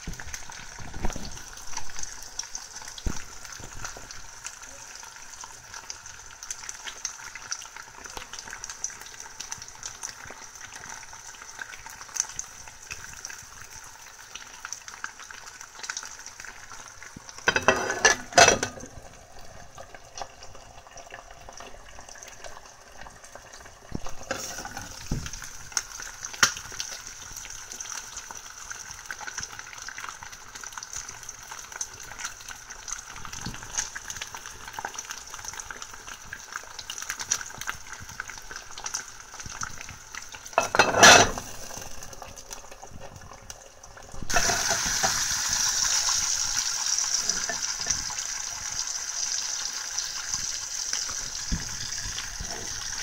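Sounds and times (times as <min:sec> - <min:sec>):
food sizzling in a pan: 0:00.0 - 0:53.0.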